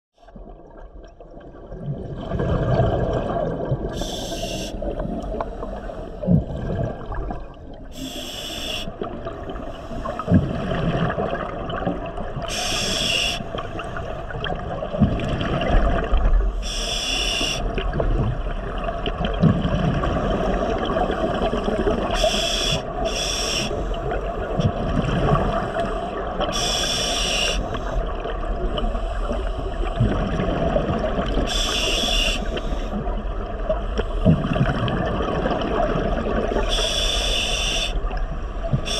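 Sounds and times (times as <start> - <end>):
regulator inhalation hiss: 4.0 - 4.8, 8.0 - 9.0, 12.5 - 13.6, 16.6 - 17.6, 22.2 - 23.9, 26.5 - 28.0, 31.5 - 33.0, 36.7 - 38.0.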